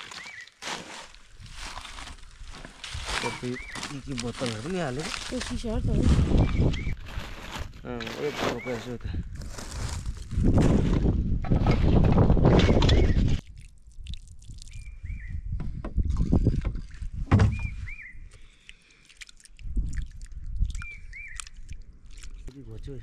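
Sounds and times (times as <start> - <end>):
small bird chirping: 6.3 - 7.0, 14.6 - 15.6, 17.5 - 18.7, 20.6 - 22.5
water splashing and sloshing: 16.0 - 22.6.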